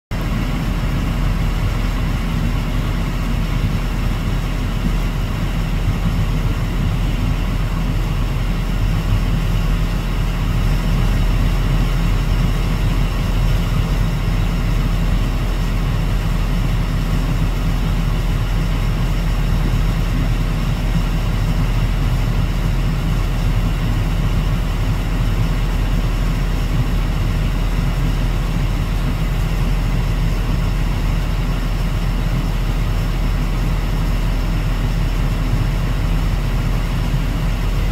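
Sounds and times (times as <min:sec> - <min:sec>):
engine idling: 0:00.0 - 0:37.9.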